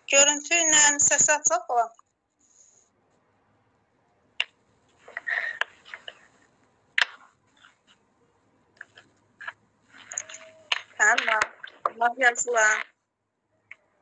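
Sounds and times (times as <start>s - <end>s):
muffled rustle: 4.8s - 8.1s.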